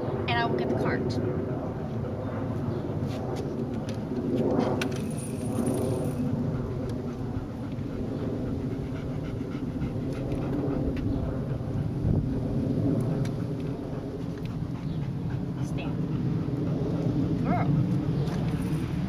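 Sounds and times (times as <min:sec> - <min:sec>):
low outdoor rumble: 0:00.0 - 0:19.0
dog panting: 0:05.8 - 0:19.0.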